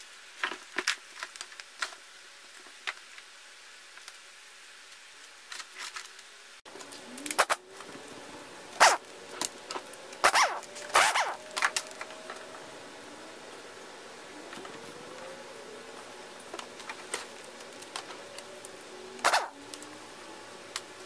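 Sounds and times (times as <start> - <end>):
faint hum: 6.7 - 21.0.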